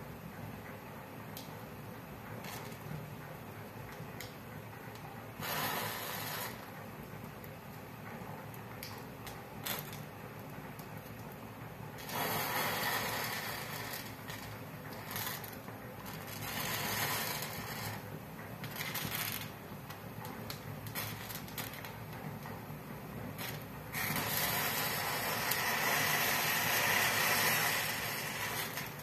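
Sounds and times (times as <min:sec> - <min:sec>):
matchsticks crackling and popping: 0:05.4 - 0:06.7, 0:23.4 - 0:29.0.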